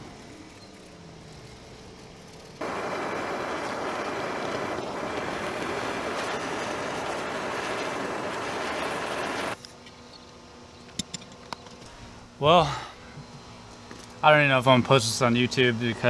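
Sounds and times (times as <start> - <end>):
propane torch hissing: 2.6 - 9.6.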